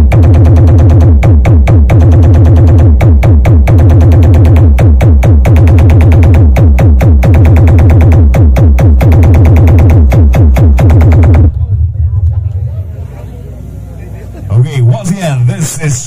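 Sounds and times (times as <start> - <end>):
loud electronic dance music: 0.0 - 11.9.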